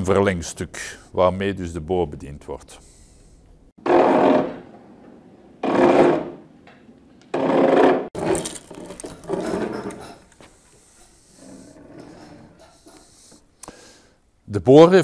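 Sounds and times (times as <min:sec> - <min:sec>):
iron reamer scraping wood: 0:05.6 - 0:06.4, 0:07.3 - 0:13.5.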